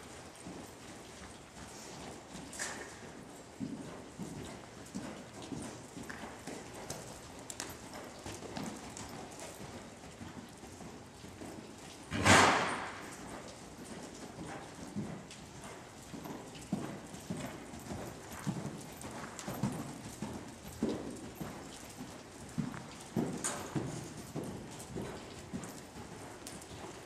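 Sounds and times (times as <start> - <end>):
hoofbeats on soft dirt: 0.0 - 27.0.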